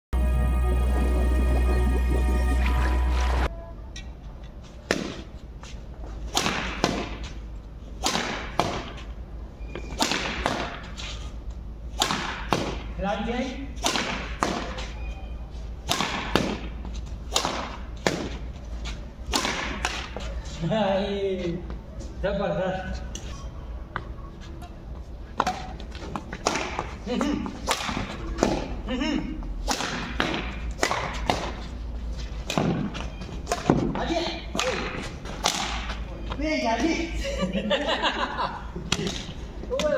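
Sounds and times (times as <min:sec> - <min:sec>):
rackets hitting a shuttlecock: 0:04.8 - 0:05.3, 0:06.3 - 0:07.4, 0:08.0 - 0:09.1, 0:09.7 - 0:11.0, 0:11.9 - 0:12.9, 0:13.8 - 0:15.0, 0:15.8 - 0:18.5, 0:19.3 - 0:20.4, 0:25.4 - 0:28.8, 0:29.6 - 0:31.6, 0:32.4 - 0:36.1, 0:38.8 - 0:39.9.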